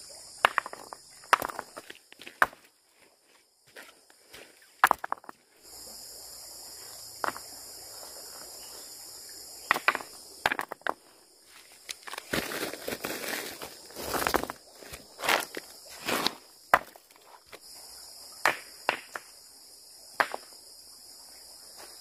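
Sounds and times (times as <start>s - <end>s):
footsteps: 0.6s - 5.4s, 10.9s - 17.6s
high-pitched hiss: 5.5s - 10.4s.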